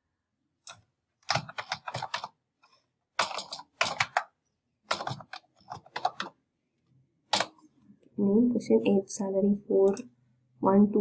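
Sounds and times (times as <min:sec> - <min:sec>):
computer keyboard typing: 0:00.7 - 0:02.4, 0:03.2 - 0:06.4, 0:07.3 - 0:07.6.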